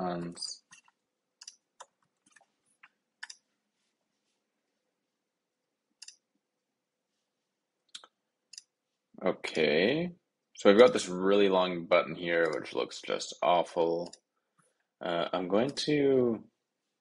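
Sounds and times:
computer keyboard and mouse clicks: 0:00.7 - 0:03.4, 0:06.0 - 0:06.2.

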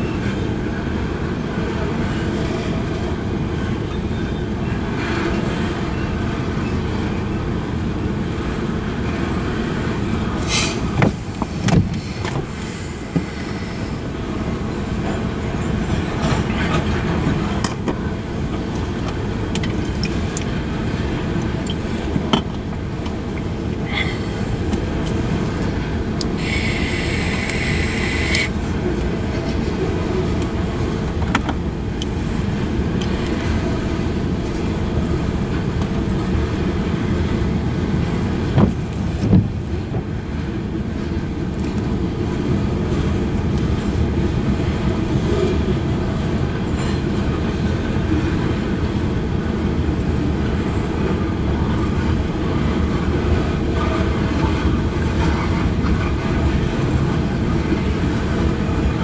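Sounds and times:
train wheels rumbling on rails: 0:00.0 - 0:59.0
high wheel squeal: 0:26.4 - 0:28.5.

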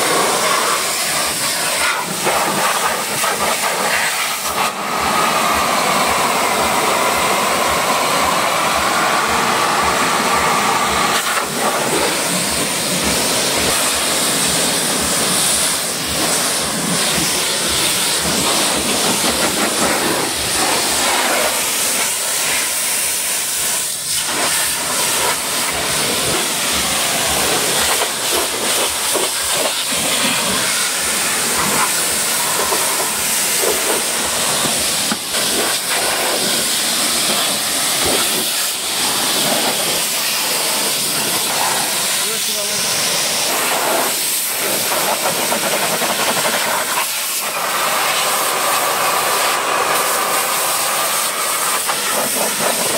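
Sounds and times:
pressure washer spraying: 0:00.0 - 0:52.9.

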